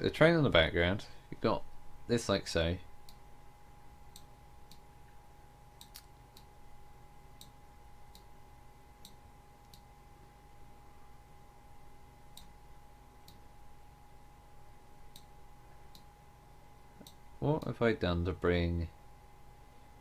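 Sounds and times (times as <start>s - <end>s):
faint electrical hum: 0.0s - 20.0s
computer mouse clicking: 5.8s - 6.5s.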